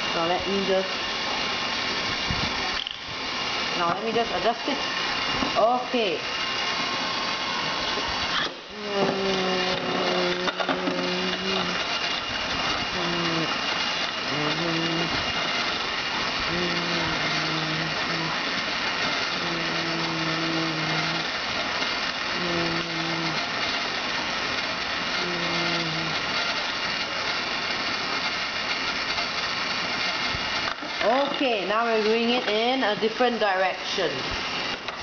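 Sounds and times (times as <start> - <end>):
toy motor whirring: 2.7 - 3.0, 7.6 - 33.4
low hum: 16.2 - 18.6.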